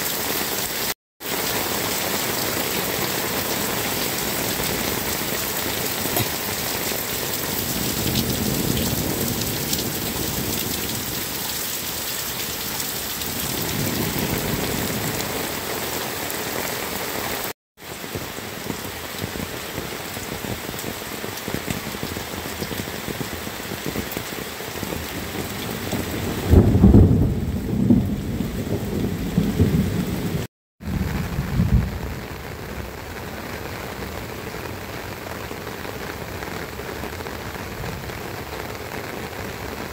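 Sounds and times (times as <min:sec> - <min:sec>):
heavy rain pouring: 0:00.0 - 0:39.9
low rumble of thunder: 0:03.8 - 0:11.4, 0:13.2 - 0:15.5, 0:24.8 - 0:33.3.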